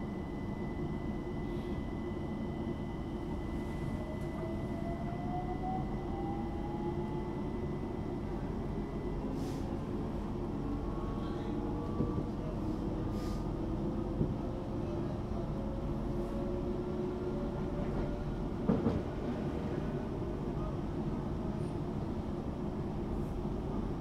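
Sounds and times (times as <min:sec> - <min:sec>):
train wheels rumbling on track: 0:11.5 - 0:22.1.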